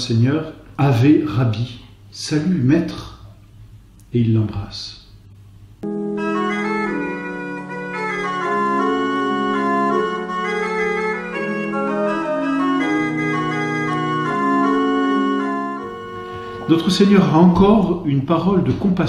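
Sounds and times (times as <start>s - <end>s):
organ playing slow chords: 5.2s - 18.0s.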